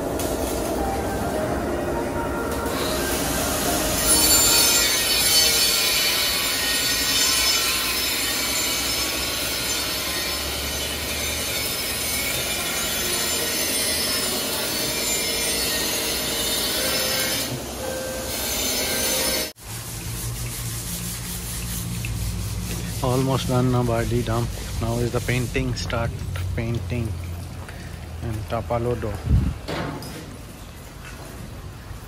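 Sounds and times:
power tool grinding steel: 2.6s - 26.2s.

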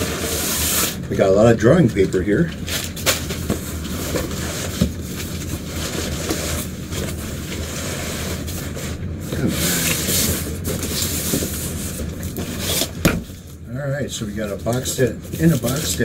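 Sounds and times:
cardboard scraping: 0.0s - 1.1s, 1.9s - 13.5s, 14.6s - 16.0s
cardboard knocks: 13.0s - 13.3s.

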